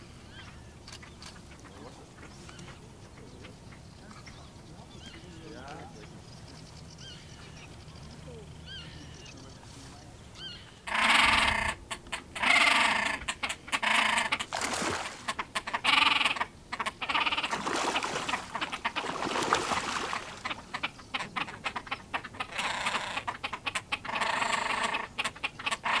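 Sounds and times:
grebes giving harsh calls: 10.4 - 26.0
splashing water: 14.4 - 15.4, 17.2 - 20.8.

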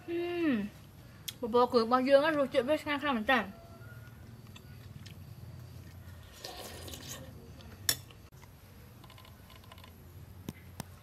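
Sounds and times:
spoon scraping glass bowl: 6.2 - 7.4.

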